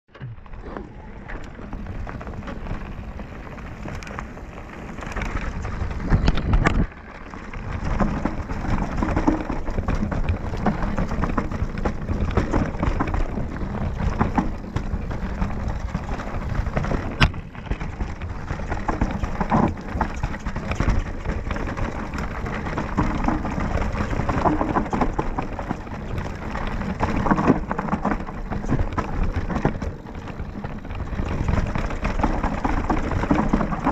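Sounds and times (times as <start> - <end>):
bike knocking and rattling: 0.1 - 33.9
bike tyres rumbling on dirt trail: 0.1 - 33.9.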